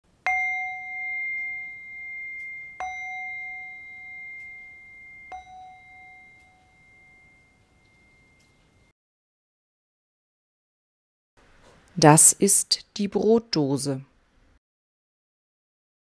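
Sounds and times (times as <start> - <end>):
chime ringing: 0.2 - 8.9.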